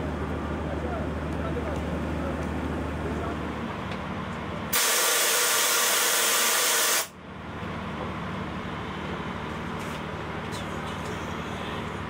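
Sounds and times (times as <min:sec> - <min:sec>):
compressed air hissing from brake valve: 0:04.7 - 0:07.1.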